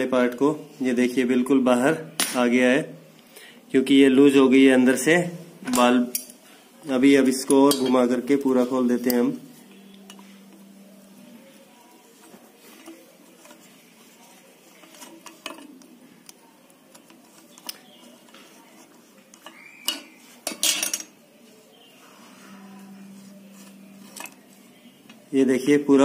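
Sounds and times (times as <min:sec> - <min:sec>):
light metal scraping: 0:07.4 - 0:15.9, 0:22.0 - 0:25.0.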